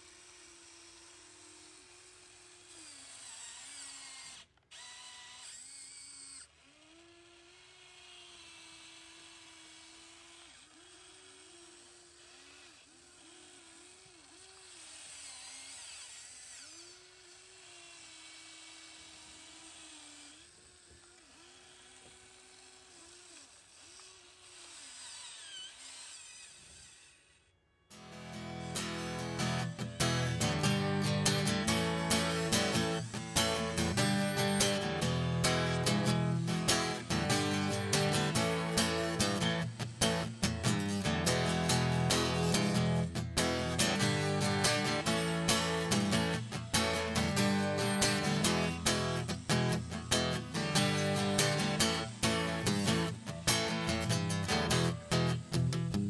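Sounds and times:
electric motors whirring: 0.0 - 56.0
high-pitched motor whines: 0.0 - 56.0.

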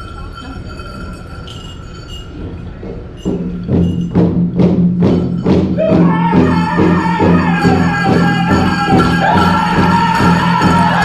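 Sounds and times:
powwow drum steady beat: 1.0 - 11.0
people singing: 6.0 - 11.0.

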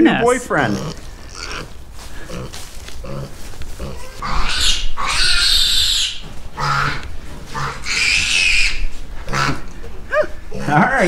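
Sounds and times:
piglet squealing: 0.7 - 1.7, 3.8 - 7.0, 7.6 - 10.8.

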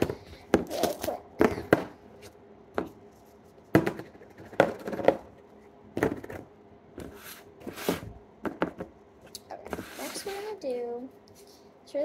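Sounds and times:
plastic tubs knocking on a table: 1.4 - 2.0, 3.7 - 5.3, 6.0 - 6.5, 8.0 - 9.0.

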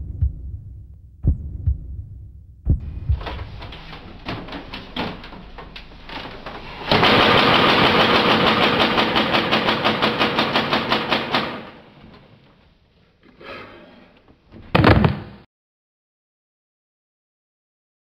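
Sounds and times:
rhythmic pulsing: 0.0 - 7.4
toy dart blaster rapid firing: 6.9 - 11.4.

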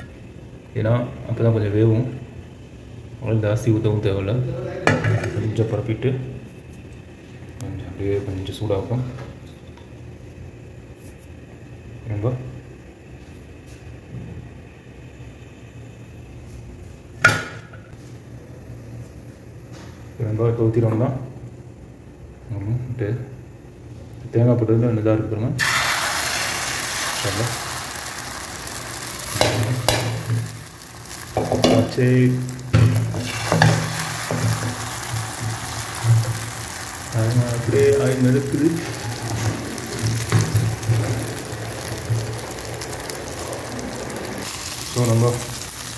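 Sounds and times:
steady low hum: 0.0 - 25.6
omelette sizzling in oil: 25.6 - 45.9
frying pan clanking on grate: 29.0 - 36.8, 38.8 - 42.6.

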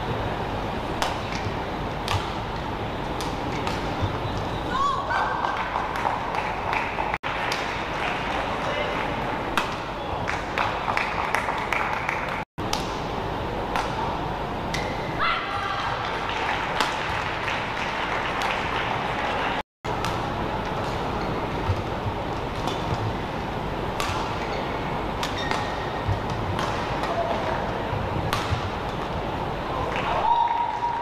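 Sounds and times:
rackets striking shuttlecock: 1.0 - 4.5, 9.5 - 10.8, 12.6 - 15.1, 19.9 - 29.2
shoes squeaking on court: 1.2 - 4.7, 20.8 - 23.1, 24.2 - 26.4
hall hubbub: 4.6 - 12.4, 15.2 - 19.6.

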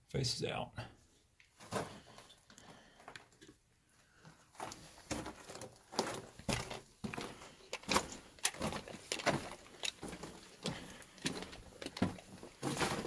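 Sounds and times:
footsteps crunching on gravel: 4.6 - 13.0.

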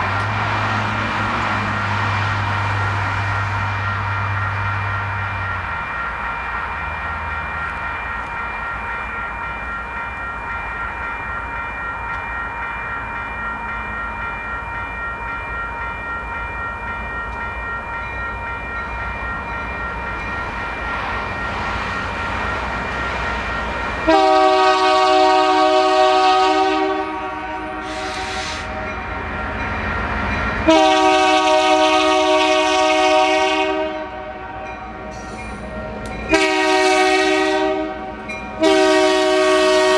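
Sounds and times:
railroad crossing bell ringing: 0.0 - 39.9
locomotive air horn blasts: 24.1 - 28.8, 30.6 - 34.6, 36.3 - 39.9.

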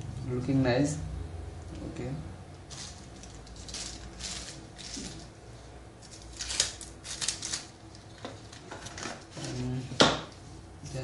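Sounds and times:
paper and packaging rustling: 2.7 - 5.4, 6.0 - 9.8.

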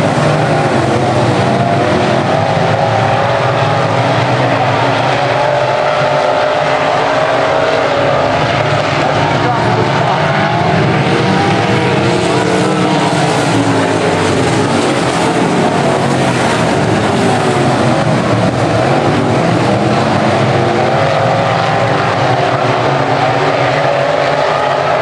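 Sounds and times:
race car engines droning: 0.0 - 25.0.

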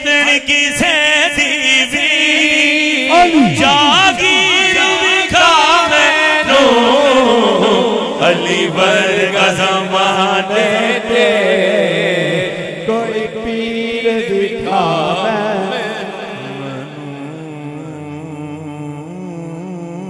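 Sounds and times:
man singing into a microphone: 0.0 - 20.0.

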